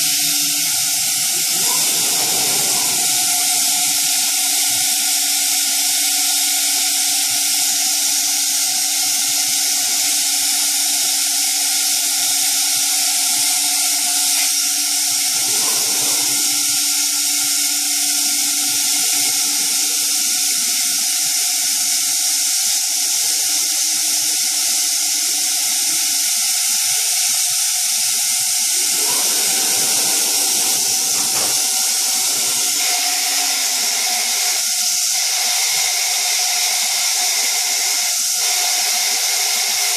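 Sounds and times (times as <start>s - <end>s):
low machine hum: 0.0s - 5.8s, 13.6s - 20.5s, 28.2s - 34.3s
cnc router hissing: 0.0s - 39.9s.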